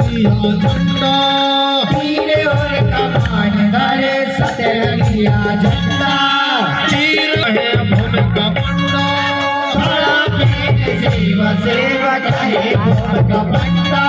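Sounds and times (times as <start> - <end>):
hand drum beat: 0.0 - 3.8, 6.9 - 8.9, 9.8 - 14.0.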